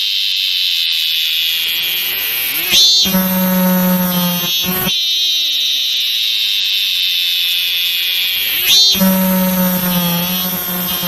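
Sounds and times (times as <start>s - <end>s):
cicada buzzing: 0.0s - 11.0s.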